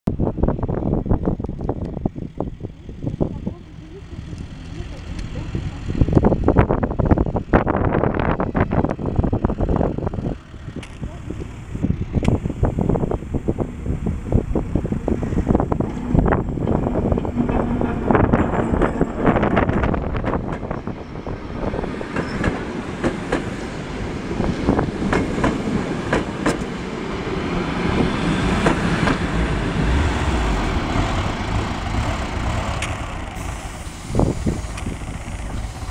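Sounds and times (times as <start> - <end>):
train wheels clicking over rail joints: 14.6 - 21.0, 21.7 - 23.6, 24.5 - 26.8, 28.0 - 35.9.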